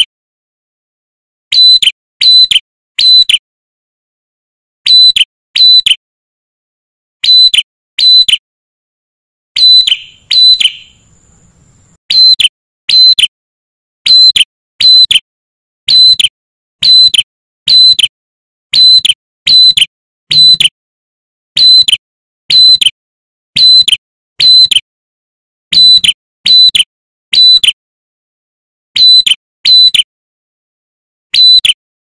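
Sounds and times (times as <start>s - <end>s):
bird singing shrill whistles: 1.5s - 3.3s, 4.9s - 6.0s, 7.2s - 8.4s, 9.6s - 13.2s, 14.1s - 15.2s, 15.9s - 16.2s, 16.8s - 17.1s, 17.7s - 18.0s, 18.8s - 20.7s, 29.0s - 30.0s.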